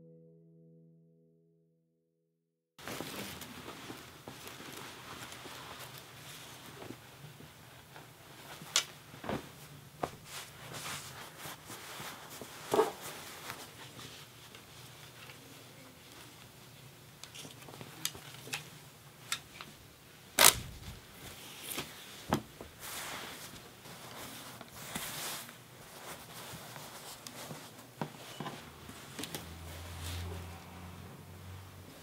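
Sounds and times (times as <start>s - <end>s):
cloth rustling: 2.8s - 15.2s, 20.4s - 30.5s.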